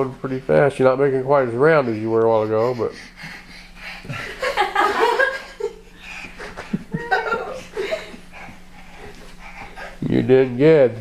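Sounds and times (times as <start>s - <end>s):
people laughing: 4.0s - 8.5s.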